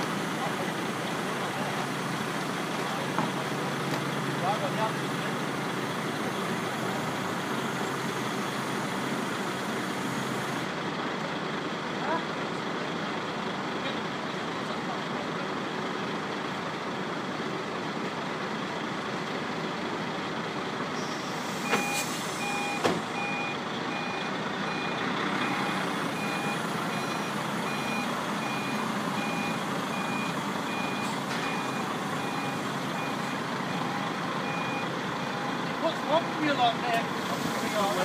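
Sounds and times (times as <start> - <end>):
truck diesel engine running: 0.0 - 38.0
reversing alarm beeping: 21.6 - 35.7.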